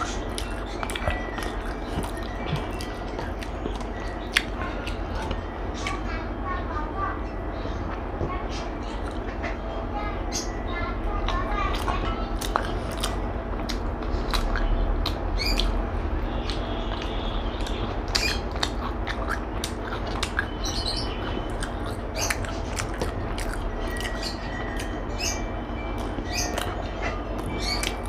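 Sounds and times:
person chewing: 0:00.0 - 0:06.0, 0:11.7 - 0:25.0, 0:25.9 - 0:28.0
steady low hum: 0:00.0 - 0:28.0.

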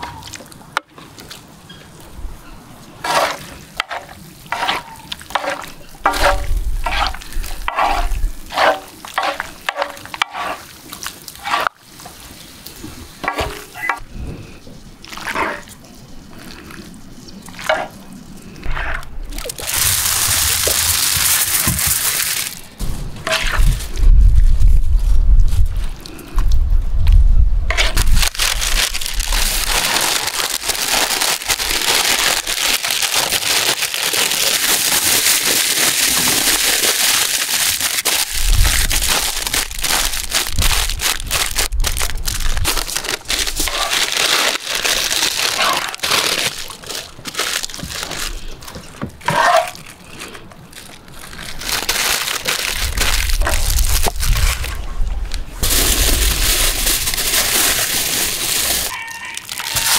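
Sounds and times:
aluminium foil crinkling: 0:03.0 - 0:11.8, 0:19.3 - 0:26.0, 0:27.7 - 0:54.8, 0:55.6 - 0:59.9.

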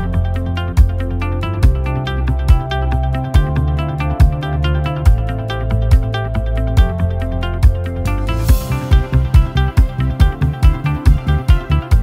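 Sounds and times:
guitar over steady beat: 0:00.0 - 0:12.0.

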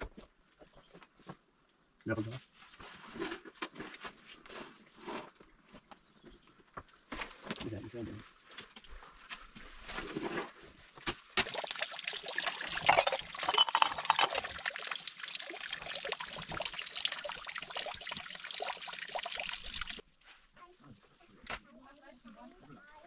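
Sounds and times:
liquid pouring and splashing: 0:11.4 - 0:20.0.

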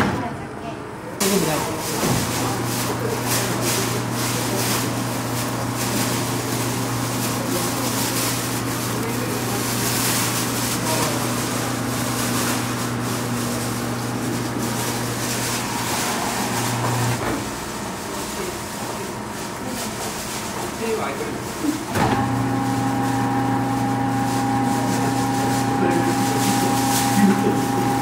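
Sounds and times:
electric motor humming: 0:03.8 - 0:17.4, 0:21.9 - 0:28.0.

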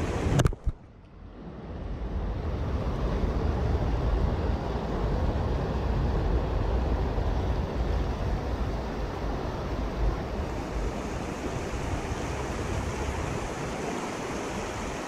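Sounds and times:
wind buffeting microphone: 0:00.0 - 0:15.0
water rushing over rocks: 0:08.8 - 0:15.0.

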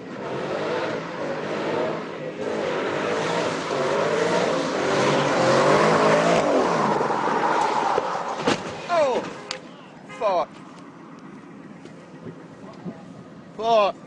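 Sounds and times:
sports car engine revving: 0:00.0 - 0:08.4.

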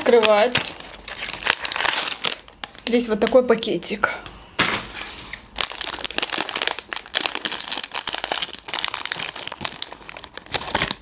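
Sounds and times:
snack packet crinkling: 0:00.0 - 0:03.1, 0:05.6 - 0:11.0.

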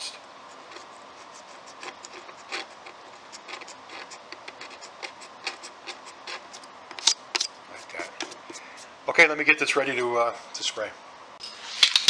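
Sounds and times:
razor blade scraping wood: 0:00.6 - 0:08.8.

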